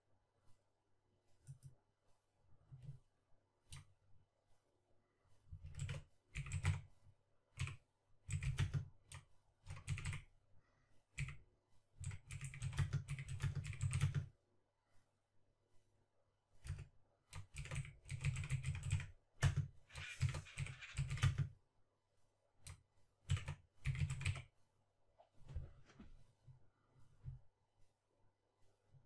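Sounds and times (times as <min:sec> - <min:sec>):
typing on computer keyboard: 0:05.6 - 0:06.8, 0:07.6 - 0:10.2, 0:11.2 - 0:11.4, 0:12.0 - 0:14.3, 0:16.6 - 0:21.5, 0:22.6 - 0:24.4.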